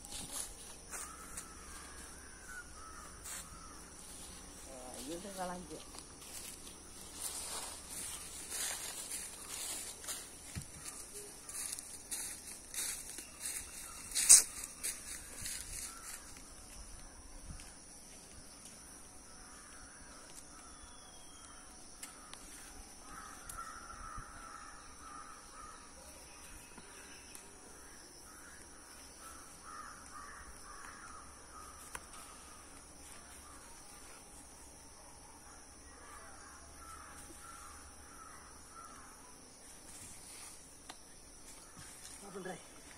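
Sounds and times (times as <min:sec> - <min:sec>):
crows cawing: 0:00.8 - 0:04.1, 0:08.0 - 0:16.4, 0:22.0 - 0:26.0, 0:28.3 - 0:32.6, 0:35.8 - 0:39.2.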